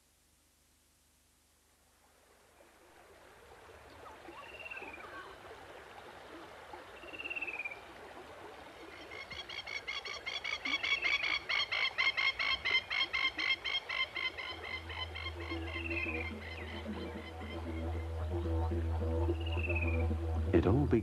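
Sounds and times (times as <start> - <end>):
fast pulsing bird call: 8.9 - 20.6.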